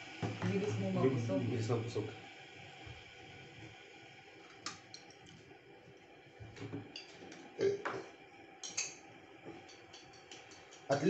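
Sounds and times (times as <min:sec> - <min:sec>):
jars and cups clicking on table: 0:09.6 - 0:10.9.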